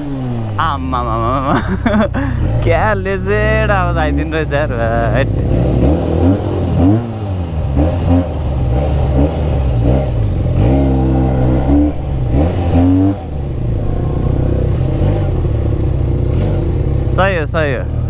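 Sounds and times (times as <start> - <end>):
motorcycle engine revving: 0.0 - 18.0.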